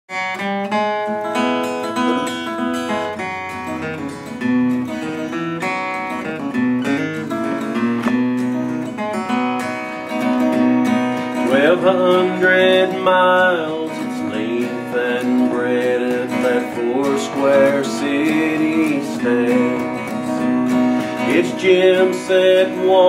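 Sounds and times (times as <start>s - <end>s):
acoustic guitar strumming chords: 0.1s - 23.0s.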